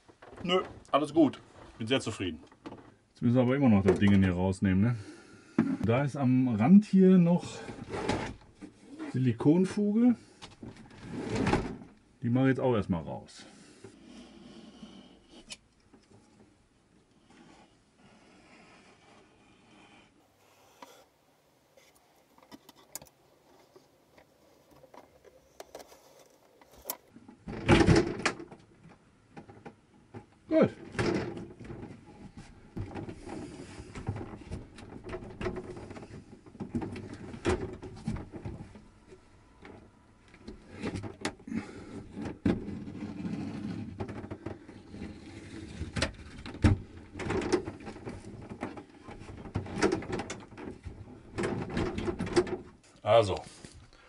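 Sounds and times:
wall panel knocking and rattling: 0:27.4 - 0:28.6, 0:45.8 - 0:52.8.

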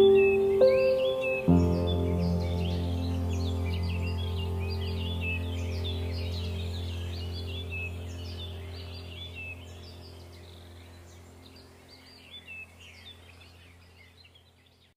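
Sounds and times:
steady low hum: 0:00.0 - 0:14.2
small birds chirping: 0:00.0 - 0:14.9.

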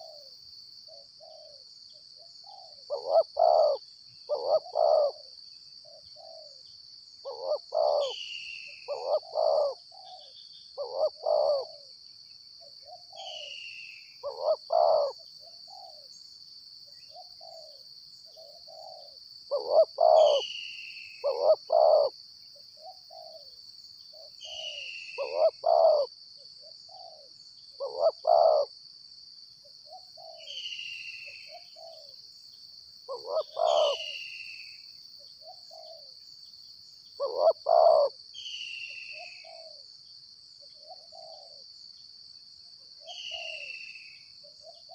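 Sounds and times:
doves cooing: 0:00.0 - 0:00.3, 0:02.4 - 0:05.3, 0:07.2 - 0:08.2, 0:08.9 - 0:10.2, 0:10.8 - 0:11.9, 0:14.2 - 0:16.1, 0:18.4 - 0:20.6, 0:21.2 - 0:22.1, 0:22.8 - 0:23.5, 0:24.4 - 0:26.1, 0:26.9 - 0:28.7, 0:31.5 - 0:32.2, 0:33.1 - 0:34.2, 0:35.4 - 0:36.1, 0:37.2 - 0:38.2, 0:39.2 - 0:39.8, 0:40.9 - 0:41.6
high insect drone: 0:00.0 - 0:44.9.

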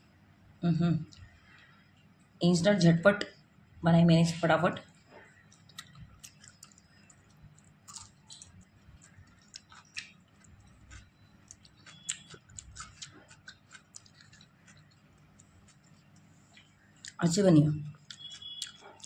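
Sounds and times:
person chewing and eating: 0:05.0 - 0:17.2, 0:17.9 - 0:19.0.

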